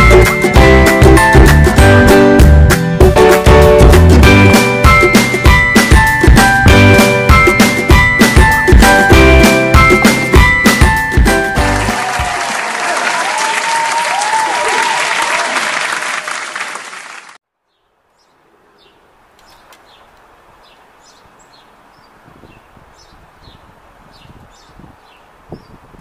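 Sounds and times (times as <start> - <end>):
loud applause: 11.6 - 17.4
faint outdoor ambience: 17.6 - 26.0.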